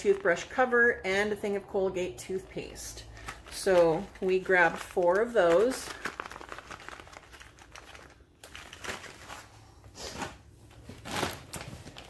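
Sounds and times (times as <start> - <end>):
plastic packaging crinkling: 0.0 - 0.6, 3.0 - 9.6, 10.2 - 12.0.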